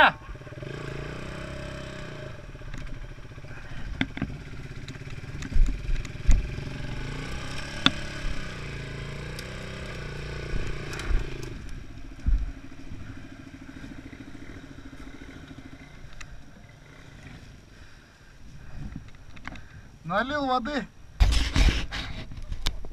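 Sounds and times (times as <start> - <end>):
dirt bike engine: 0.0 - 20.5
bike rattles and clicks: 2.5 - 17.6, 18.7 - 19.8
heavy thumps over bumps: 3.6 - 8.8, 9.6 - 13.2.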